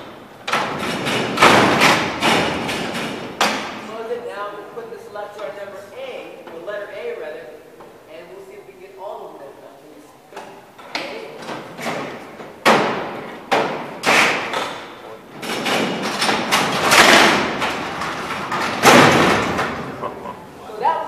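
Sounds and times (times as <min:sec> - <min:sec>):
cell doors clanking and rattling: 0:00.0 - 0:04.2, 0:10.4 - 0:20.6
cell doors rumbling: 0:00.0 - 0:05.0, 0:10.6 - 0:20.7
loud metal clang: 0:15.4 - 0:20.0.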